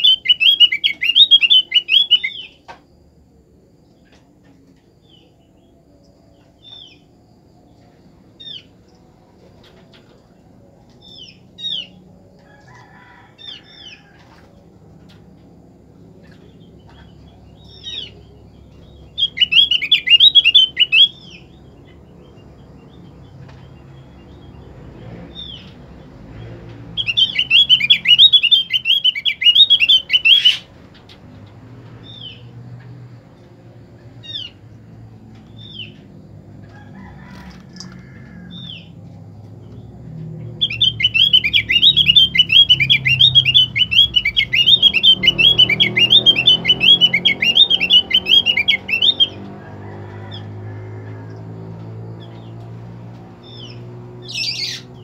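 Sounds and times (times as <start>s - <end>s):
bird call notes: 0.0s - 2.7s, 16.3s - 21.6s, 27.0s - 30.7s, 40.4s - 49.5s
songbird chattering warble: 40.4s - 49.4s.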